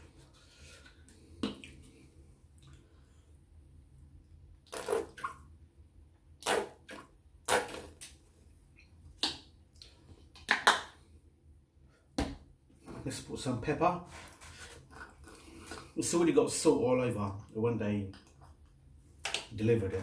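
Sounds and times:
squeeze bottle squirting sauce: 4.7 - 5.4.

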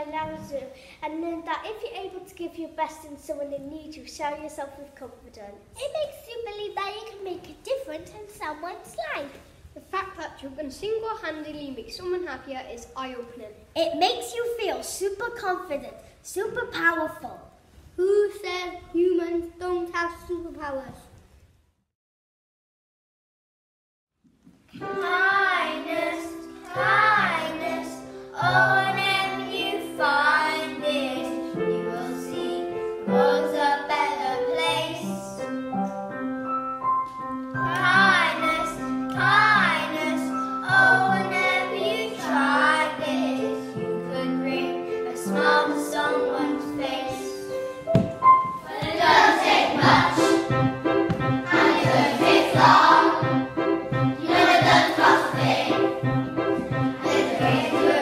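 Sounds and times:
children singing: 24.8 - 35.3, 37.6 - 47.7, 48.6 - 50.5, 51.4 - 53.5, 54.1 - 58.0
piano accompaniment: 24.8 - 58.0.

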